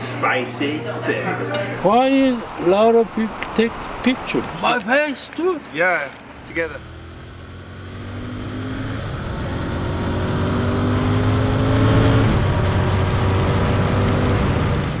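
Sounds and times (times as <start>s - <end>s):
motorcycle engine accelerating: 6.3s - 15.0s.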